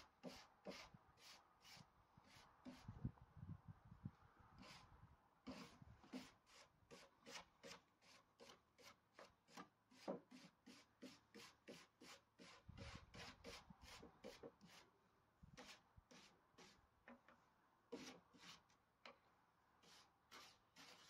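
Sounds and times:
abrasive tool scrubbing: 19.8 - 21.0.

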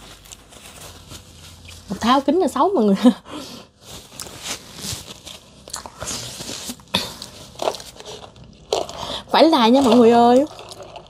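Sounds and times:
paper tissue rustling: 0.0 - 8.3.

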